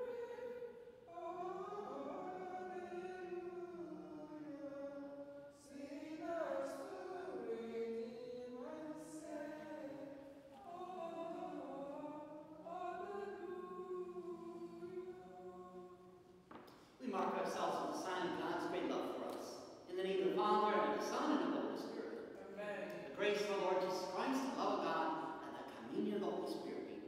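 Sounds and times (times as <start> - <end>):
group singing a hymn: 0.0 - 16.4.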